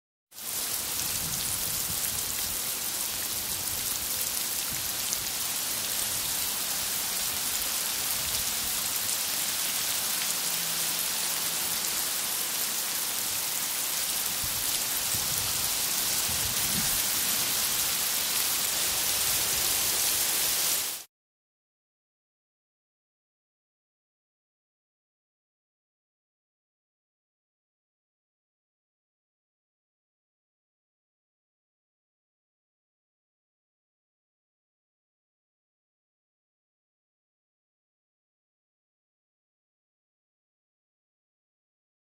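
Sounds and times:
heavy rain falling: 0.4s - 21.1s.

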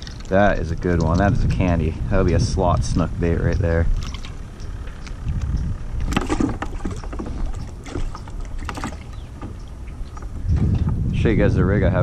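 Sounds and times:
steady low rumble: 0.0s - 12.0s
handling knocks and rustles: 6.0s - 11.0s.

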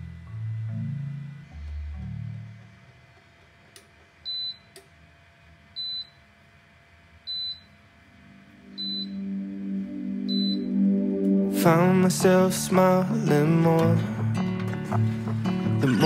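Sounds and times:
soft background music: 8.2s - 16.0s
short high beeps: 8.7s - 9.3s, 10.3s - 10.8s.

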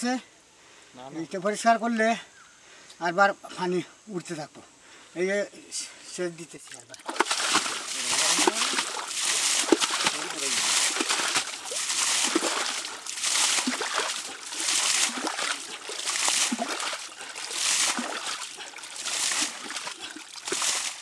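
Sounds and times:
water bailed and splashing: 6.4s - 21.0s.

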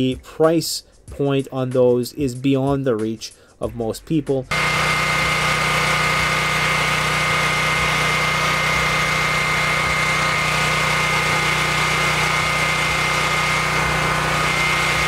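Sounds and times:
generator engine droning: 4.5s - 15.0s.

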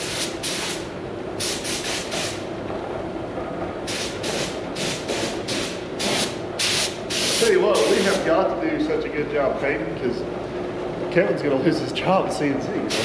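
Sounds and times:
paint spray hissing bursts: 1.4s - 2.4s, 3.9s - 8.2s.

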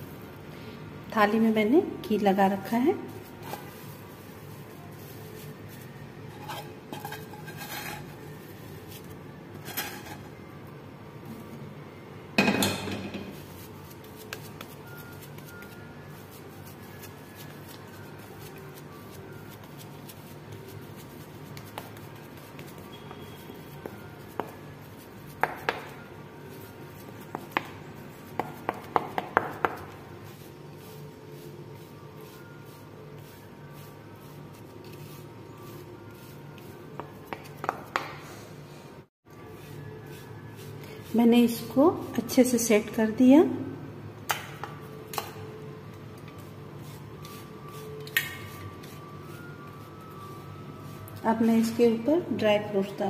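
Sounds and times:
wooden spatula scraping pan: 6.3s - 8.4s, 9.6s - 10.3s.

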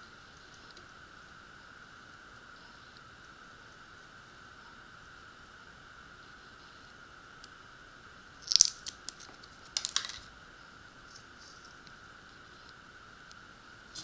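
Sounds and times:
faint high whine: 0.0s - 14.0s
plastic parts clicking and scraping: 8.5s - 10.3s.

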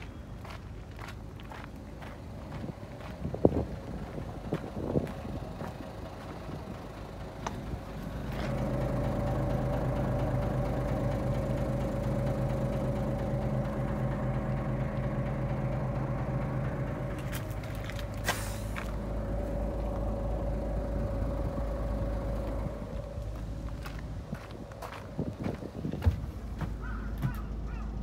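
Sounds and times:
bus diesel engine idling: 0.0s - 28.0s
brief hiss: 18.2s - 18.8s.

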